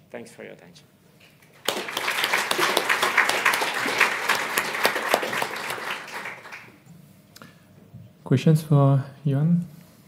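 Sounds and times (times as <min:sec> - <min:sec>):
audience applauding: 0:01.5 - 0:06.8.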